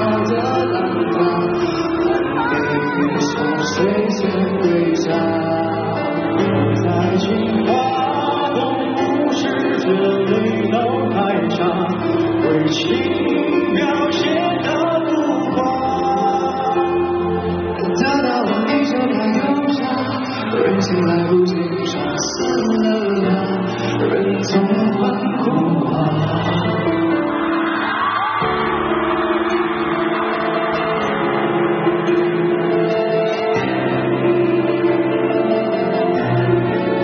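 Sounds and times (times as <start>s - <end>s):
man singing: 0.0s - 27.3s
live pop band: 0.0s - 37.0s.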